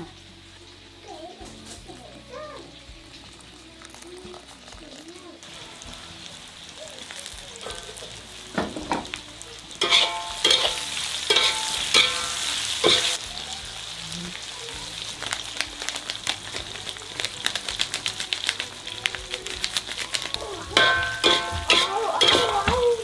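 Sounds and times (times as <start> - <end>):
food sizzling in a wok: 0.0 - 23.0
metal spatula scraping a wok: 9.7 - 13.2, 20.7 - 23.0
wok ringing with loud clangs: 9.8 - 13.2, 20.8 - 22.8
quick crackling: 9.8 - 23.0.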